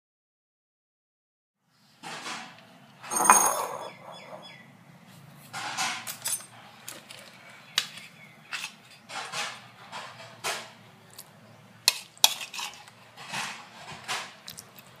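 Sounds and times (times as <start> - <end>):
bowl clinking on counter: 3.1 - 4.5
handling knocks and rustles: 3.1 - 4.5.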